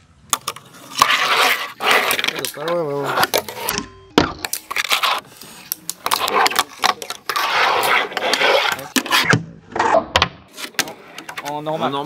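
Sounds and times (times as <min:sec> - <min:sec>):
wheels rolling on wooden ramp: 0:00.3 - 0:03.7, 0:06.0 - 0:09.9.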